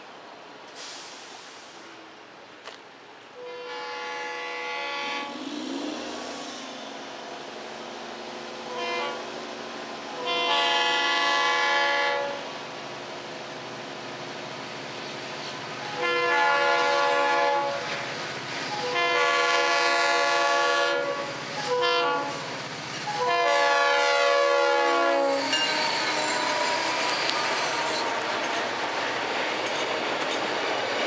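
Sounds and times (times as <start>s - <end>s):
train rumble: 0.0s - 31.0s
locomotive air horn blasts: 3.4s - 5.4s, 8.6s - 9.2s, 10.1s - 12.4s, 15.9s - 17.9s, 18.8s - 22.5s, 23.1s - 28.4s.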